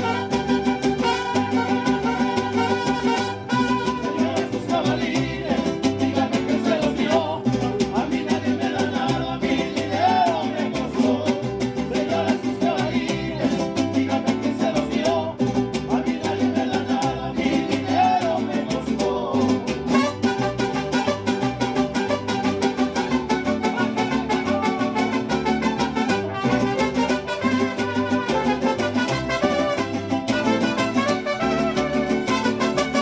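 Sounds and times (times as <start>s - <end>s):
violins and trumpets melody: 0.0s - 4.1s, 19.9s - 33.0s
strummed and plucked guitars: 0.0s - 33.0s.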